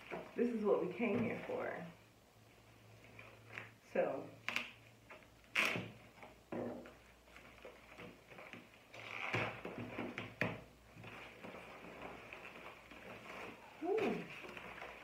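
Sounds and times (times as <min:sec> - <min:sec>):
wrapping rustling and crinkling: 0:04.4 - 0:15.0.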